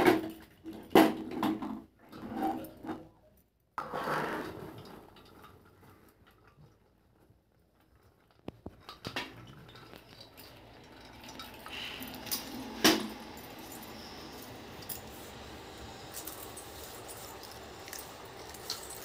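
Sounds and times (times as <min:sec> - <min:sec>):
popcorn rustling: 0:05.1 - 0:19.0.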